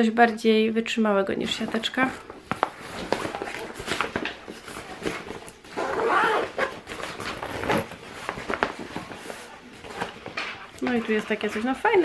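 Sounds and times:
backpack fabric rustling: 2.0s - 10.2s
backpack straps clicking: 5.8s - 6.7s.

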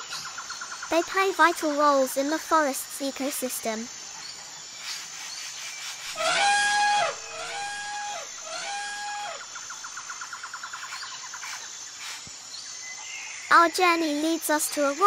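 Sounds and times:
elephant trumpeting: 6.2s - 9.4s.

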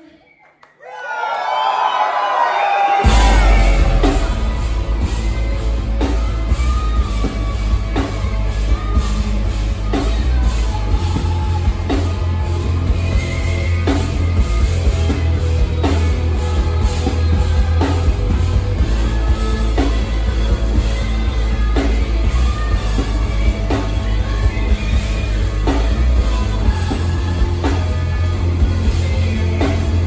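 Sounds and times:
drum hits: 3.0s - 8.0s
metal band playing live: 3.0s - 30.0s.

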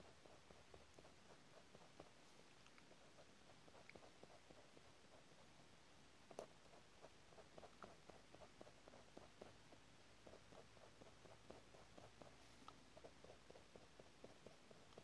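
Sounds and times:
pencil scratching on paper: 0.0s - 5.5s, 6.3s - 15.0s.

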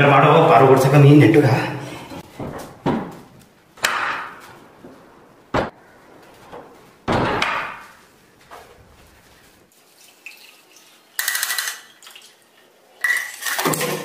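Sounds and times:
wooden doors knocking and banging: 2.2s - 5.8s, 6.4s - 8.0s.

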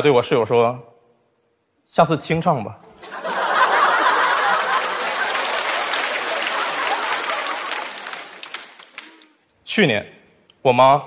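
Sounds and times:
audience laughing: 2.9s - 9.2s
audience applauding: 3.1s - 9.4s.

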